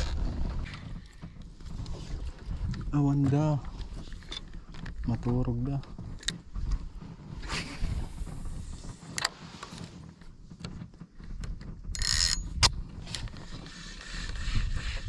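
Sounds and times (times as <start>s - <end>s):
reel gears ticking quickly: 11.9s - 12.5s
fishing reel sharp clicks: 12.0s - 12.4s.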